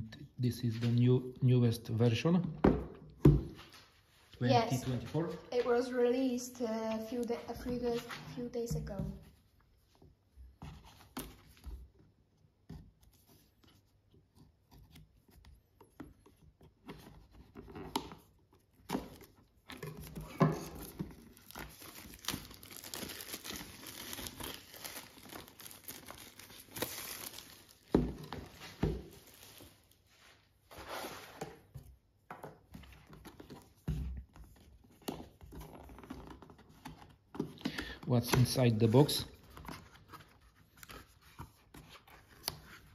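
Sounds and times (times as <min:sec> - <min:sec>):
plastic shrink wrap crinkling: 0:19.8 - 0:30.0.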